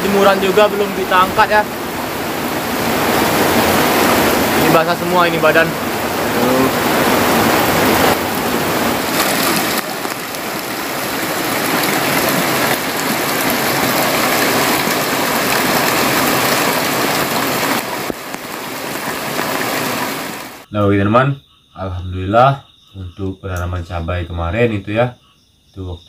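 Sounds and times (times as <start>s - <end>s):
heavy rain on a metal roof: 0.0s - 20.7s
water spilling off roof edge: 0.0s - 20.7s.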